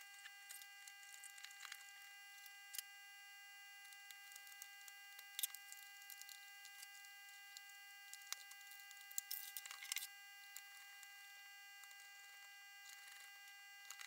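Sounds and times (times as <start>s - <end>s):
faint steady tone: 0.0s - 14.0s.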